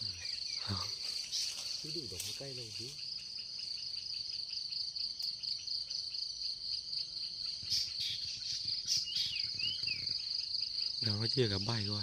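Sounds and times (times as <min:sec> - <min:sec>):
bird gliding chirps: 0:00.0 - 0:04.7, 0:07.3 - 0:11.0
insects droning: 0:00.0 - 0:12.0.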